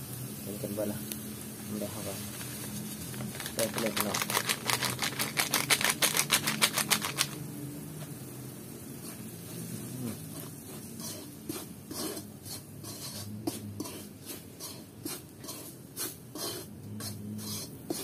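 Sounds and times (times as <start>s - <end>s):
metal spatula scraping wok: 9.0s - 18.0s.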